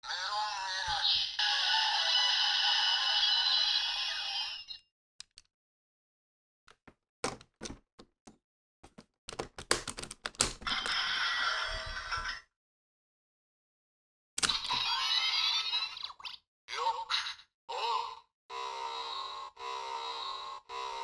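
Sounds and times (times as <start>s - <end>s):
toy electronic sound effect: 0.1s - 4.9s, 14.4s - 21.0s
plastic clicks and snaps: 6.7s - 10.6s.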